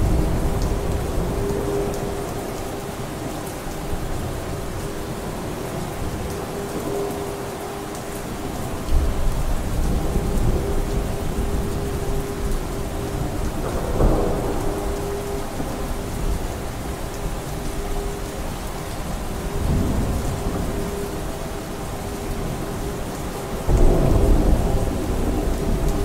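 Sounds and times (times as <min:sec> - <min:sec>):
steady rain: 0:00.0 - 0:26.0
rolling thunder: 0:08.9 - 0:17.4, 0:23.7 - 0:26.0.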